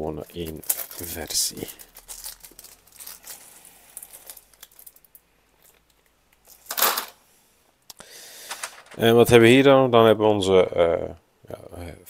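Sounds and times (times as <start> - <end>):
plastic bag crinkling: 0.2 - 7.2.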